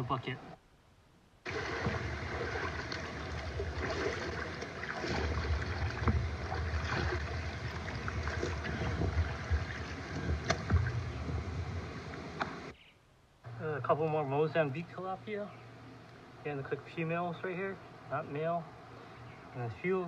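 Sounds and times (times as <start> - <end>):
stream water sloshing and splashing: 1.4 - 12.7
low rumble: 1.5 - 12.7
small irregular knocks: 8.4 - 12.6.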